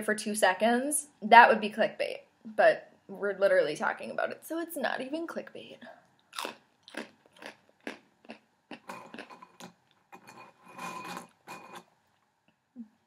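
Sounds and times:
crunchy chewing of pretzels: 0:06.2 - 0:12.2.

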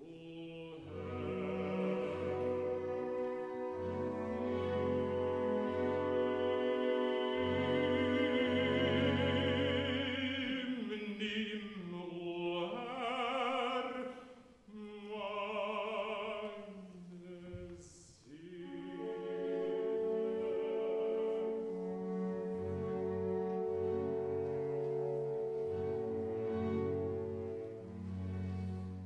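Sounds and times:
baritone voice singing: 0:00.0 - 0:03.7, 0:04.9 - 0:22.4
orchestral accompaniment: 0:00.8 - 0:10.9, 0:18.5 - 0:29.0.

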